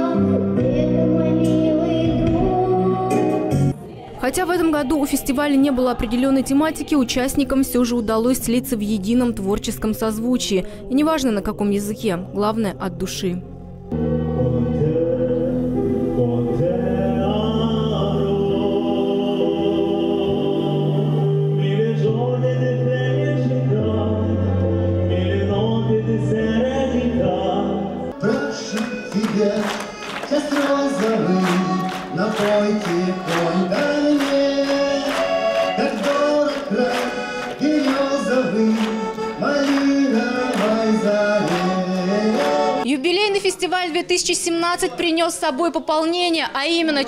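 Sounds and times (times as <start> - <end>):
button accordion chords: 13.7 - 42.9
man singing: 14.0 - 42.8
man singing slow song: 14.0 - 42.8.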